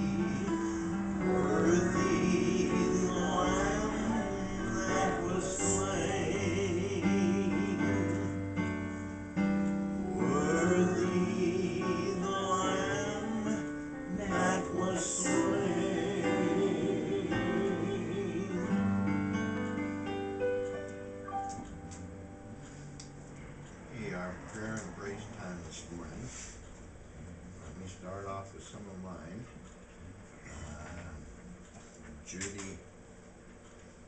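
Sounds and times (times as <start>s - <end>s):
person singing a hymn: 0.0s - 9.1s, 10.0s - 19.5s
digital piano chords: 0.0s - 25.6s.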